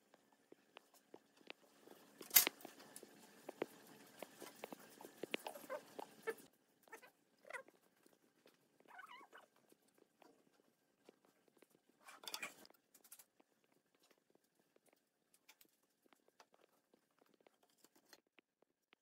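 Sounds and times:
animal chirping: 0:08.8 - 0:09.5.

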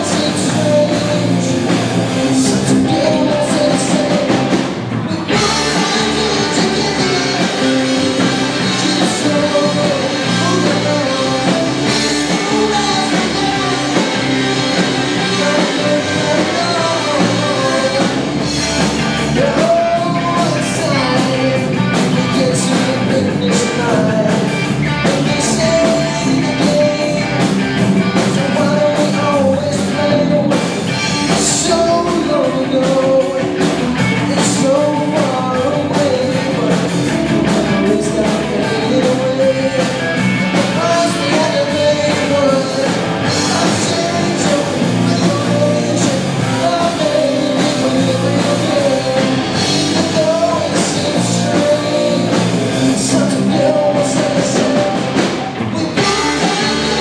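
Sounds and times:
distorted electric guitars: 0:00.0 - 0:57.0
electric bass: 0:00.0 - 0:57.0
drum kit with cymbal crashes: 0:33.0 - 0:57.0.

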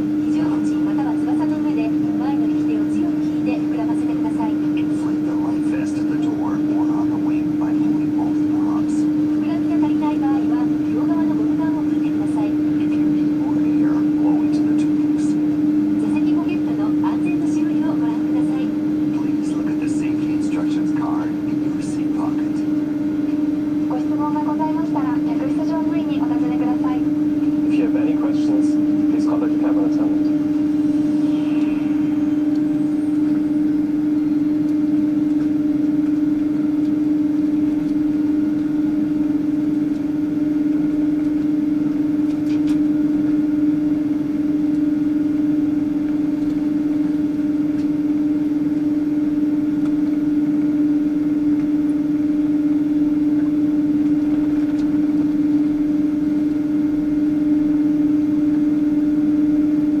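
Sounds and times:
airplane cabin hum: 0:00.0 - 1:00.0.

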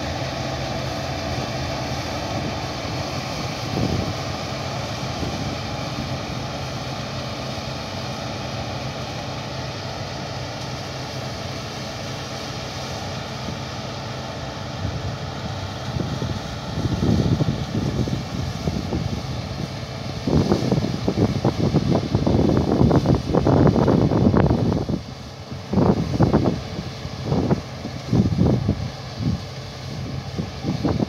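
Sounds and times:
wind buffeting microphone: 0:00.0 - 0:07.0, 0:14.7 - 0:31.0
distant combine harvester drone: 0:00.0 - 0:31.0.

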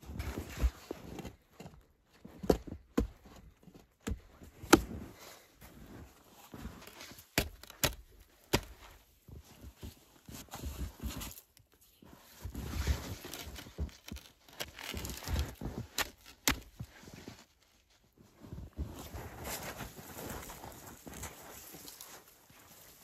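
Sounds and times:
footsteps crunching in snow: 0:00.0 - 0:02.3, 0:03.2 - 0:23.0
branches rustling and knocking: 0:06.8 - 0:08.9, 0:12.6 - 0:17.0
wood snapping: 0:07.4 - 0:08.8, 0:13.3 - 0:16.8.

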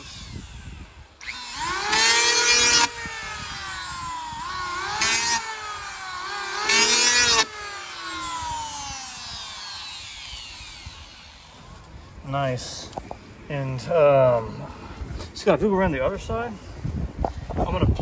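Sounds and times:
electric planer cutting wood: 0:00.0 - 0:11.9
planer motor whine: 0:00.0 - 0:11.9.

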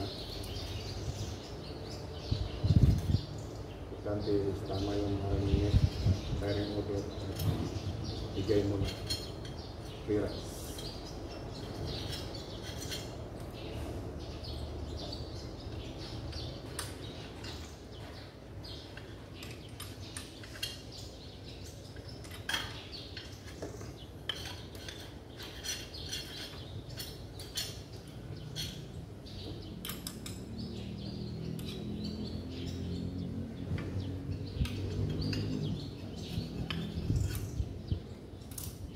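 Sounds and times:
hand tools clicking on metal: 0:21.6 - 0:28.9, 0:38.4 - 0:38.9.

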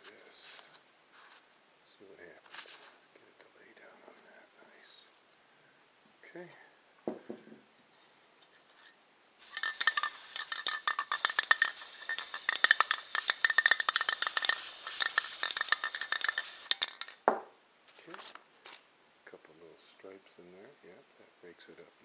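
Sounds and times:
aerosol spray can hissing: 0:09.4 - 0:17.2.

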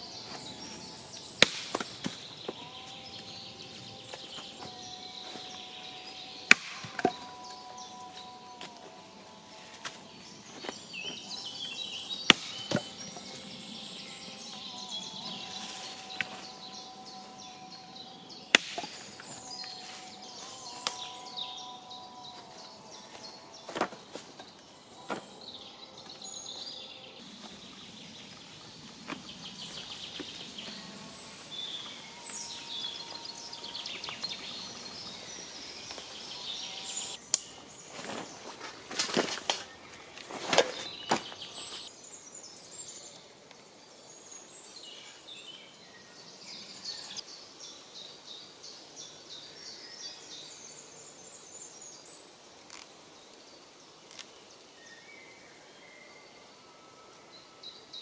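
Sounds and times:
birds singing: 0:00.0 - 0:58.0
knocks of logs and axe: 0:01.4 - 0:02.6, 0:06.4 - 0:07.4, 0:12.2 - 0:13.3, 0:18.5 - 0:19.4.

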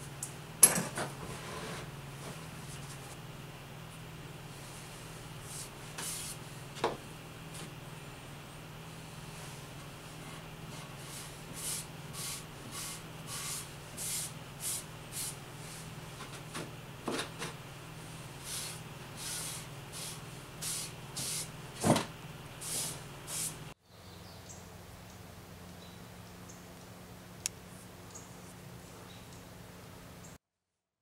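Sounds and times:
low steady hum: 0:00.0 - 0:30.4
sandpaper rubbing on wood: 0:10.8 - 0:15.9, 0:18.4 - 0:21.5.

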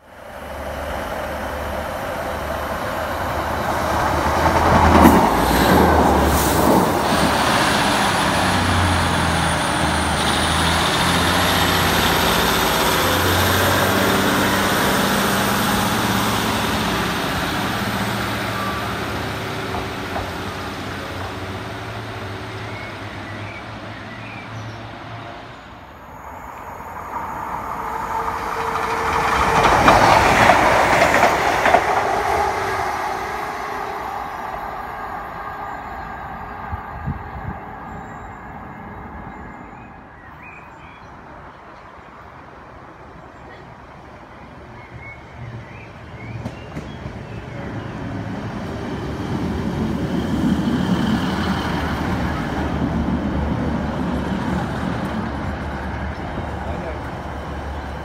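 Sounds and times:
diesel train passing: 0:00.0 - 0:58.0
second train approaching: 0:00.0 - 0:58.0
high whine rising in pitch: 0:25.8 - 0:39.8.

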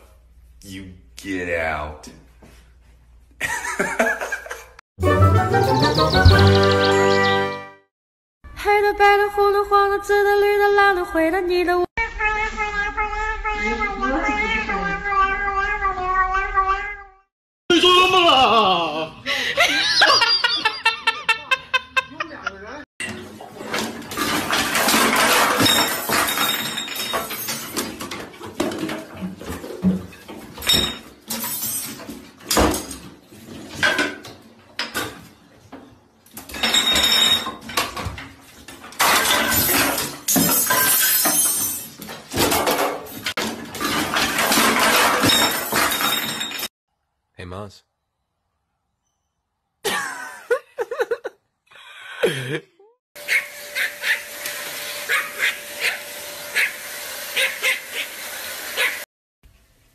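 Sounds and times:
toiletries clattering: 0:23.0 - 0:35.2, 0:36.3 - 0:46.7
small dog yapping: 0:53.2 - 0:54.2, 0:55.1 - 0:56.8, 0:57.4 - 0:58.1, 0:58.8 - 0:59.0.

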